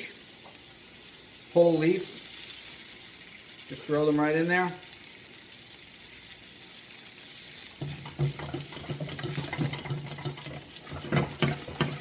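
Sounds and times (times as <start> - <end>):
butter sizzling in a pan: 0.0 - 12.0
pan rattling on burner grate: 7.8 - 12.0.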